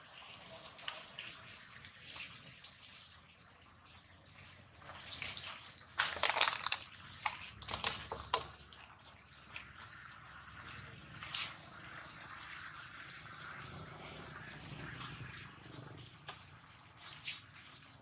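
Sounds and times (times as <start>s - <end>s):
dry leaves rustling and crackling: 4.5s - 10.0s.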